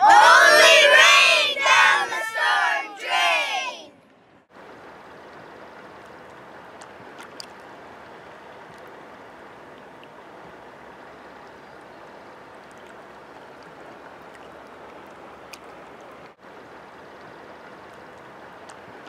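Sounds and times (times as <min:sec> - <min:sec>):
faint clicks: 0:17.9 - 0:18.8.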